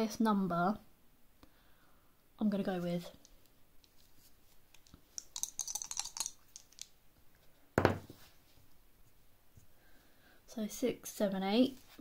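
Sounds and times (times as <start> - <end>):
dice clattering on a table: 4.8 - 6.9
loud thump: 7.8 - 8.1.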